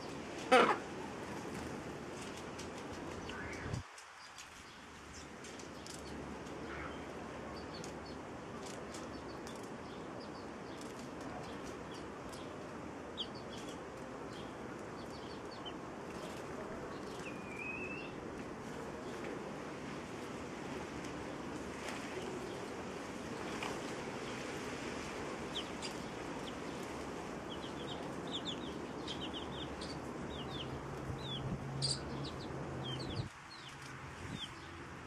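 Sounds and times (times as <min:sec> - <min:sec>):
chicks peeping: 0:15.0 - 0:18.0, 0:25.5 - 0:34.5.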